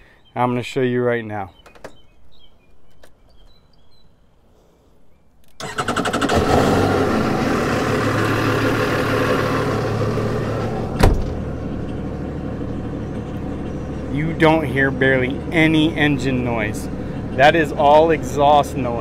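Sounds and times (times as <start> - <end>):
boat engines idling: 5.6 - 19.0
engine hatch shutting thud: 9.7 - 12.2.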